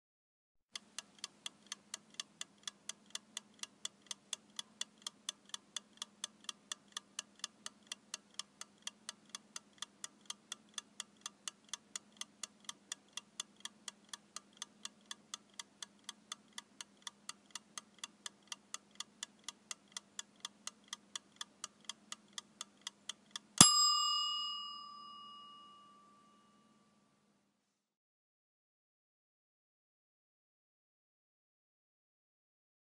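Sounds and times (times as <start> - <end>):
kitchen timer ticking: 0.8 - 26.6
timer bell ringing: 23.6 - 27.0.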